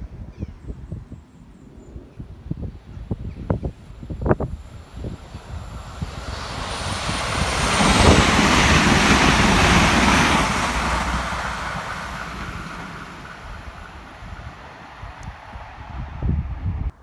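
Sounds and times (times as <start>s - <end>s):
train rumbling past: 4.1s - 17.0s.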